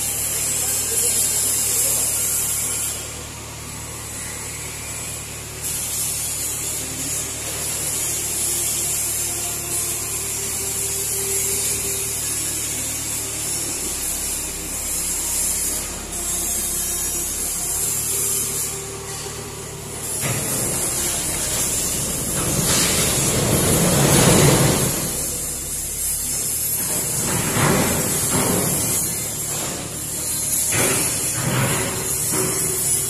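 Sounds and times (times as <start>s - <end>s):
excavator diesel engine humming: 0.0s - 33.0s
power tool hissing: 0.0s - 33.0s.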